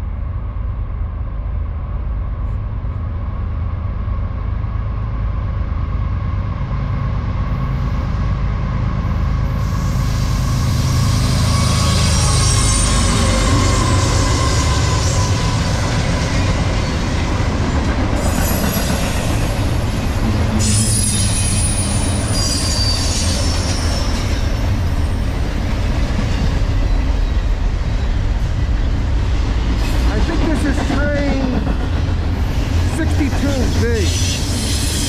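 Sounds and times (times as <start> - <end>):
train wheels rumbling on rails: 0.0 - 35.0
high-pitched wheel squeal: 9.6 - 15.8, 20.6 - 24.4.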